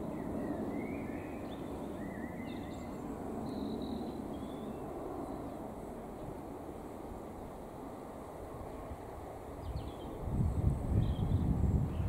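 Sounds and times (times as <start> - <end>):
small birds chirping: 0.0 - 6.3, 9.6 - 12.0.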